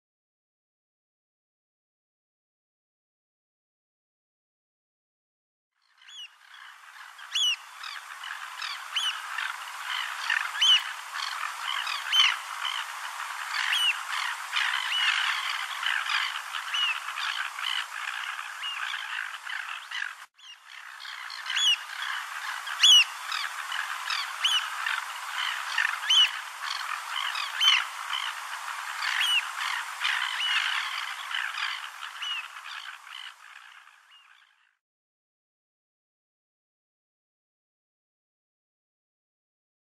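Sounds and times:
birds piping calls: 5.9 - 34.7
surf hissing: 6.6 - 33.8.

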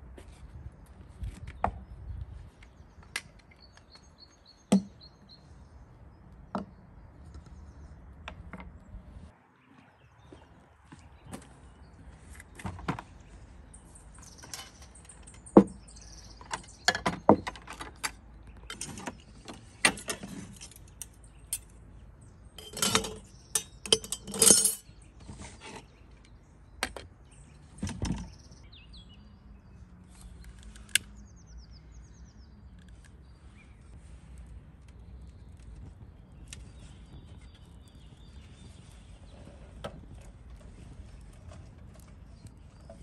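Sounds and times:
clinks and knocks of objects: 14.1 - 21.8, 22.6 - 25.8.

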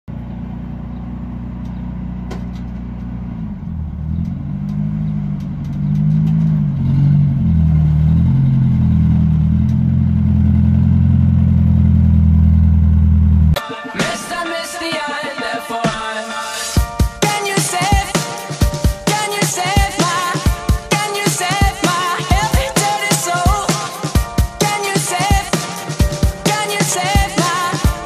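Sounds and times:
pickup truck engine running: 0.1 - 13.6.

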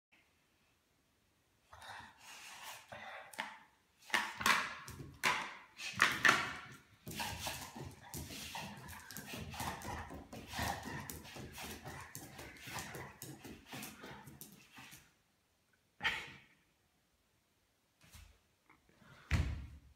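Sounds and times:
dog noises: 1.8 - 15.2
dog scrabbling on tiled floor: 4.1 - 15.1.

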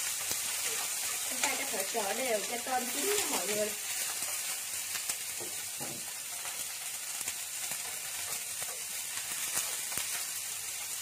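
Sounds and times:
shrimp sizzling in oil: 0.0 - 11.0
chopsticks tapping pan: 7.7 - 10.9.

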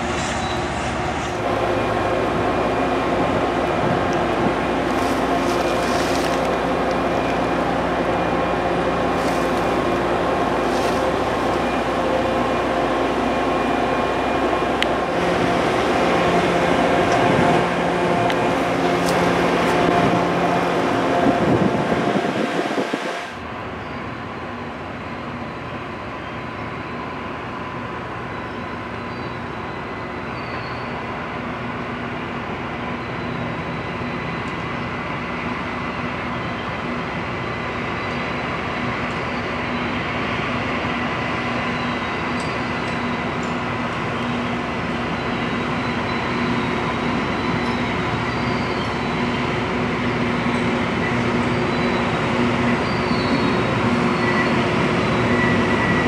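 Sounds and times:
rail grinder train running: 0.0 - 56.0
high steady whine: 1.4 - 25.1.

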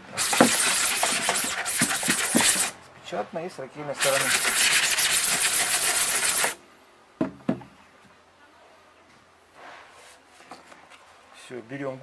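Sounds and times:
brush scrubbing wet mesh: 0.1 - 2.8, 4.0 - 6.6.

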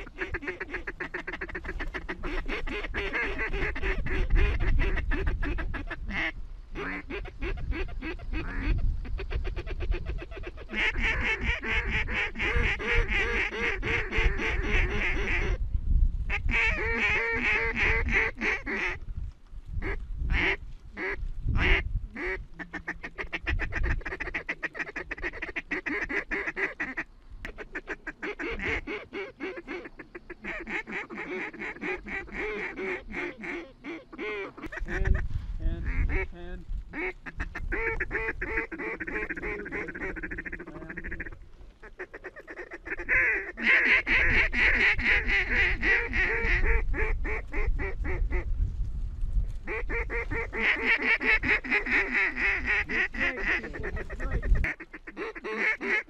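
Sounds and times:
flock of waterfowl calling: 0.0 - 15.6, 16.3 - 19.0, 19.8 - 35.3, 36.9 - 48.5, 49.7 - 56.0.

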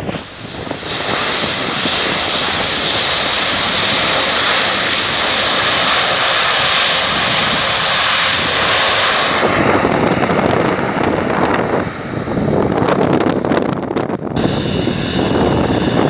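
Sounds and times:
jet engines on reverse thrust: 0.0 - 16.0.

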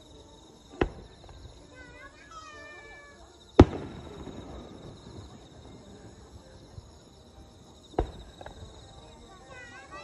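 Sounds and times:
firework boom with rumbling echo: 3.6 - 5.7.

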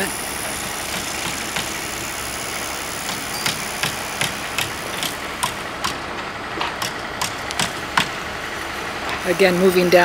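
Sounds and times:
machinery engine hum: 0.0 - 10.0.

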